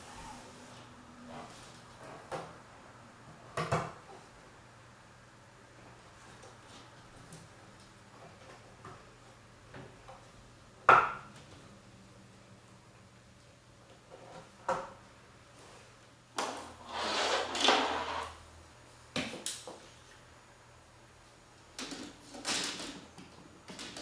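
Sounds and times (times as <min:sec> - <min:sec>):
plastic scraping rub: 0:16.8 - 0:18.4.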